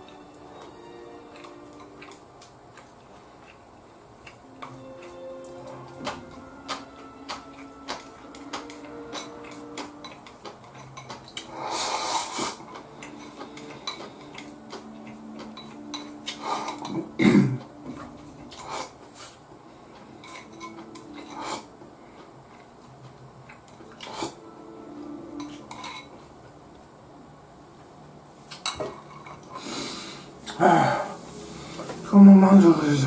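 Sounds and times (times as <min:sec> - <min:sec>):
chopsticks scraping a bowl: 0:04.6 - 0:17.0, 0:20.1 - 0:21.7, 0:23.9 - 0:24.4, 0:25.3 - 0:26.2.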